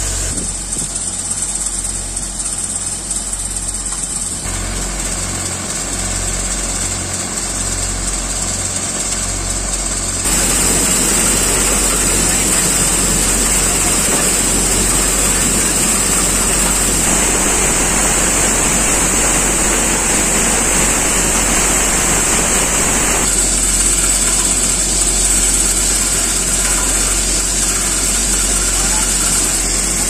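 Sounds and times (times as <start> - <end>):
thresher machine running: 0.0 - 30.0
grain pouring hiss: 10.2 - 30.0.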